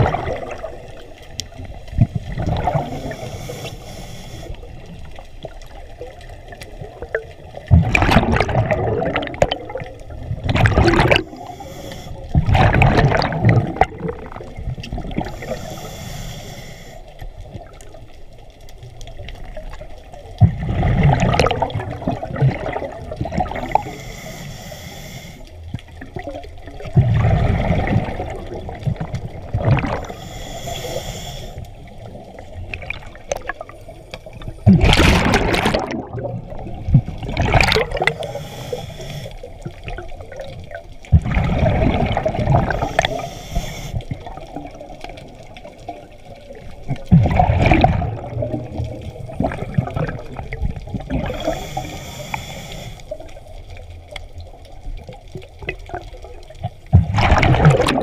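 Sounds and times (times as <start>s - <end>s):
exhaled bubbles rushing: 0.0s - 3.4s, 4.7s - 11.6s, 12.3s - 15.6s, 20.4s - 24.0s, 25.9s - 30.2s, 31.8s - 38.4s, 39.4s - 43.2s, 44.0s - 51.9s, 54.4s - 58.0s
regulator inhale hiss: 2.9s - 4.9s, 11.2s - 12.4s, 15.2s - 17.3s, 23.7s - 25.6s, 29.9s - 32.0s, 38.0s - 39.6s, 42.7s - 44.3s, 51.2s - 53.3s.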